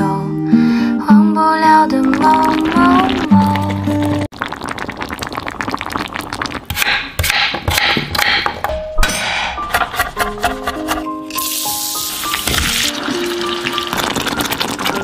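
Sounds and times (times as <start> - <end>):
music: 0.0 - 3.9, 8.6 - 15.0
knife chopping on wooden board: 6.8 - 8.6.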